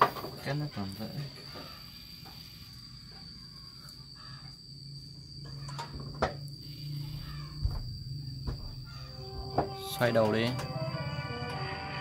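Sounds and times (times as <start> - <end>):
high-pitched insect drone: 0.0 - 12.0
low hum: 6.3 - 12.0.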